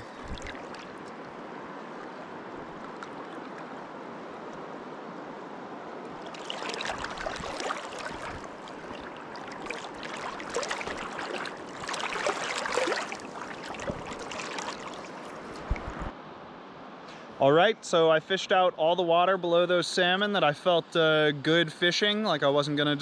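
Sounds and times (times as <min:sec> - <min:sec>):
river water rushing and splashing: 0:00.0 - 0:16.2.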